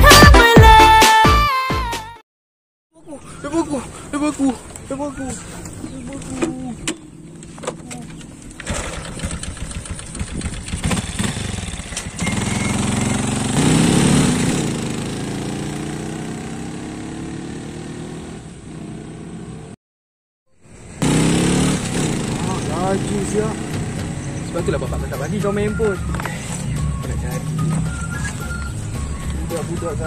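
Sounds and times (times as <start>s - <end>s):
motorcycle engine revving: 6.4s - 19.8s, 20.8s - 30.0s.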